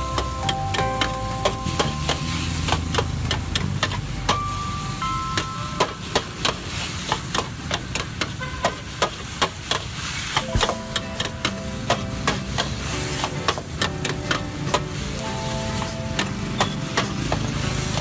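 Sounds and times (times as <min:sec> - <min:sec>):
food sizzling: 0:00.0 - 0:18.0.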